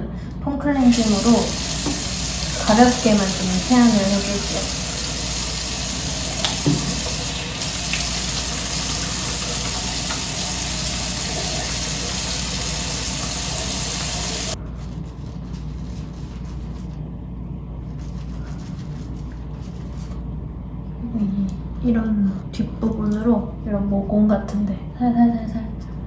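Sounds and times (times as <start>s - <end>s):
sink tap running: 0.8s - 14.6s
water splashing on face: 0.9s - 14.6s.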